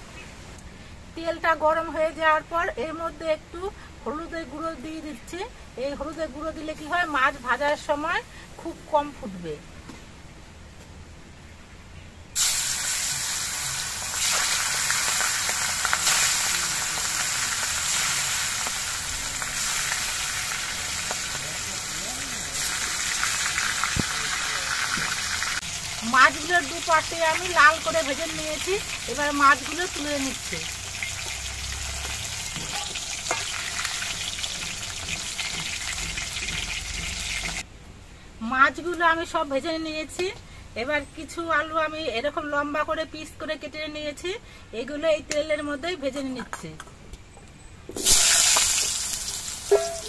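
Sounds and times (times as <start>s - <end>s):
fish sizzling in hot oil: 12.4s - 37.6s, 48.0s - 50.0s.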